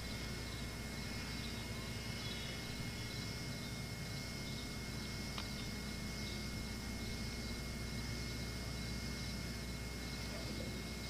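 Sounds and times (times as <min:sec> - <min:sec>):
camcorder hiss and hum: 0:00.0 - 0:11.0
insects chirping: 0:00.0 - 0:11.0.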